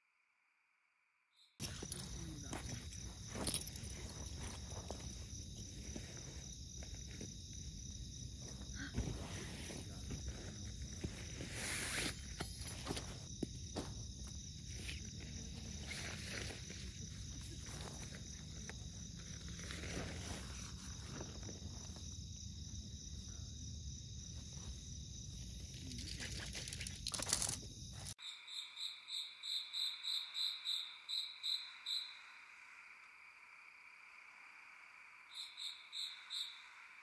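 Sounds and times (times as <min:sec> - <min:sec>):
crickets and insects trilling: 0:01.4 - 0:37.0
tent fabric rustling: 0:19.2 - 0:22.0.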